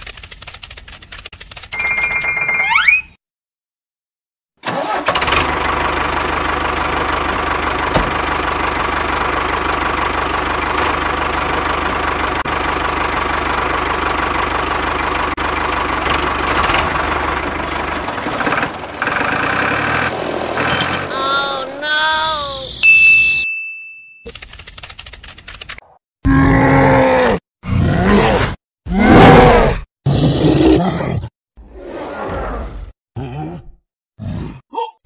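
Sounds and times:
tractor engine running: 0:04.6 - 0:22.9.

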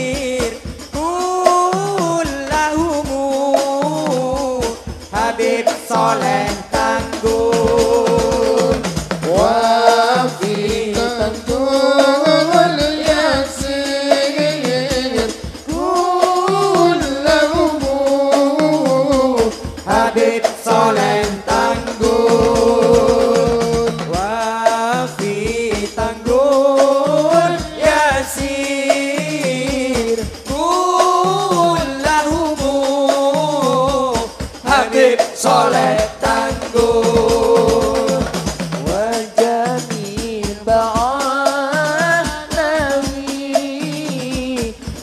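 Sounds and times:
men chanting into microphones: 0:00.0 - 0:45.0.

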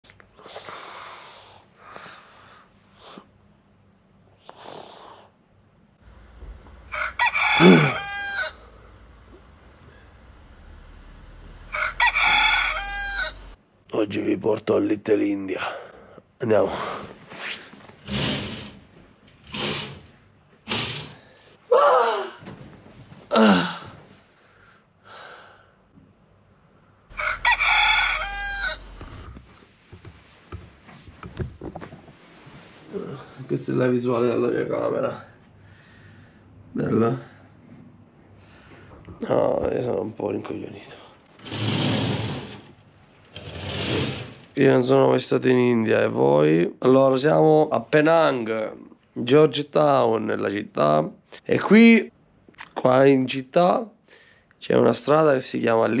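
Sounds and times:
rooster crowing: 0:06.1 - 0:13.6, 0:27.1 - 0:29.4
wavering animal call: 0:06.1 - 0:13.6, 0:27.1 - 0:29.3.

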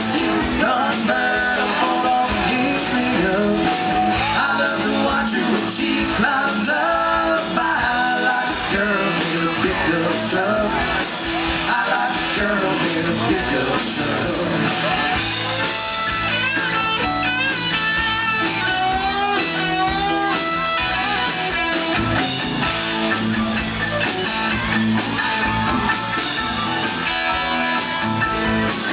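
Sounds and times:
lead vocal singing: 0:00.0 - 0:15.0
country rock band playing live: 0:00.0 - 0:28.9
electric guitar solo: 0:14.5 - 0:28.9.

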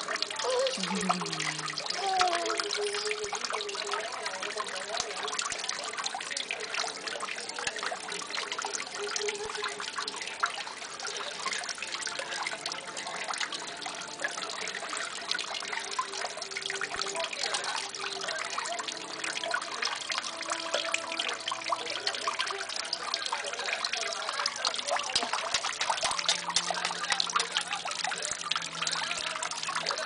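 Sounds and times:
water trickling and splashing: 0:00.0 - 0:30.0.

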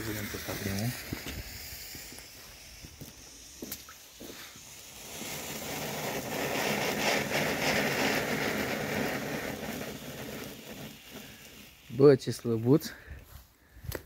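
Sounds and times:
firework fountain hissing: 0:00.0 - 0:13.2.

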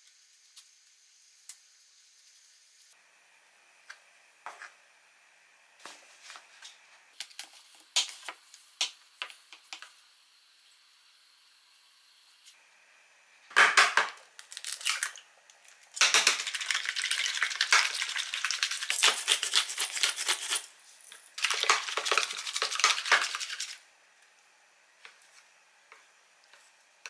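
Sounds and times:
pepper grinder crackling: 0:14.3 - 0:23.8.

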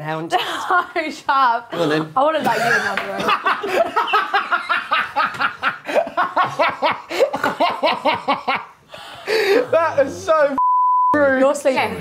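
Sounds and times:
people laughing hard: 0:02.5 - 0:10.1.

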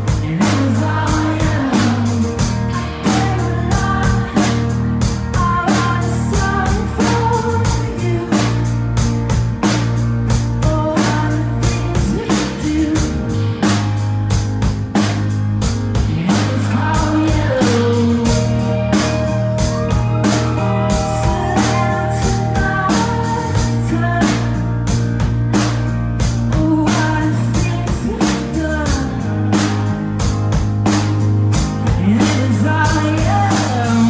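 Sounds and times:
man singing: 0:00.0 - 0:08.7, 0:10.6 - 0:13.4, 0:16.0 - 0:19.2, 0:19.8 - 0:24.6, 0:26.5 - 0:29.7, 0:31.8 - 0:34.0
bass guitar: 0:00.0 - 0:34.0
drum kit: 0:00.0 - 0:34.0
electric guitars: 0:00.0 - 0:34.0.

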